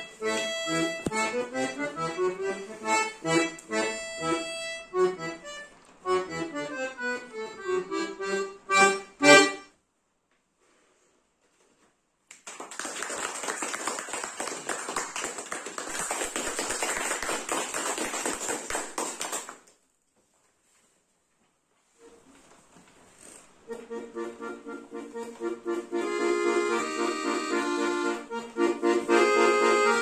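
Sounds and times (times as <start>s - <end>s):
piano accordion playing: 0.0s - 9.8s, 23.6s - 30.0s
applause: 12.3s - 19.7s.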